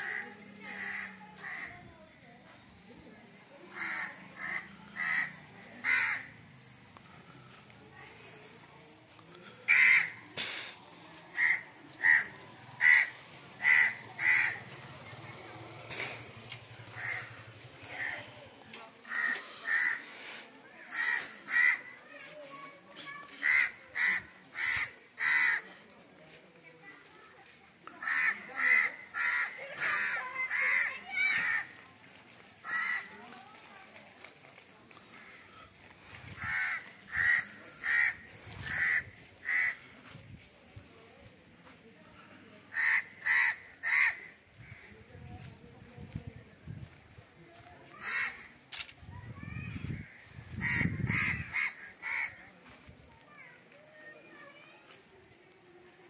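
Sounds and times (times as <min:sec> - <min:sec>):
crow cawing: 0:00.8 - 0:01.7, 0:03.7 - 0:06.4, 0:09.7 - 0:10.2, 0:11.4 - 0:14.6, 0:17.0 - 0:18.2, 0:19.1 - 0:20.1, 0:20.9 - 0:22.0, 0:23.4 - 0:25.6, 0:28.0 - 0:31.7, 0:32.6 - 0:33.1, 0:36.4 - 0:39.8, 0:42.7 - 0:44.8, 0:48.0 - 0:48.5, 0:50.0 - 0:52.4.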